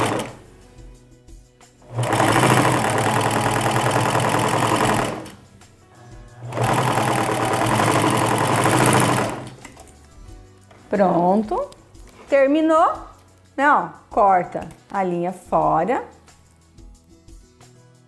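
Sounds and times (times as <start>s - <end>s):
sewing machine stitching: 0.0s - 0.4s, 1.8s - 5.4s, 6.4s - 9.8s.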